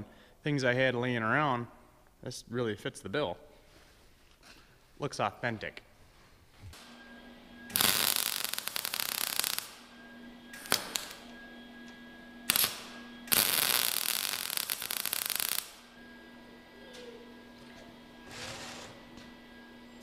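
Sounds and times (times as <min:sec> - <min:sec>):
welder arc crackling: 0:07.7 - 0:11.3, 0:12.4 - 0:16.0.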